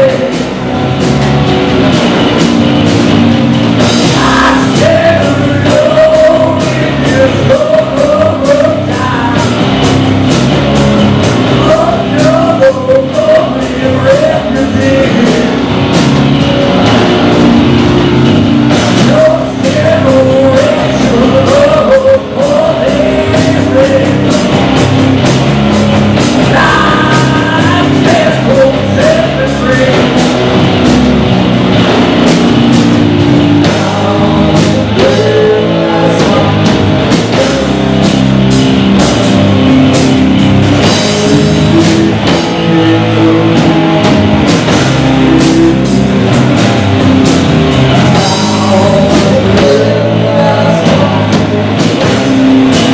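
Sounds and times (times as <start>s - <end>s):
man singing into a microphone: 0.0s - 0.5s, 4.1s - 9.7s, 11.5s - 15.6s, 19.0s - 24.6s, 26.5s - 30.2s, 33.6s - 38.0s, 41.2s - 44.0s, 47.8s - 52.9s
drum kit: 0.0s - 52.9s
electric guitars: 0.0s - 52.9s.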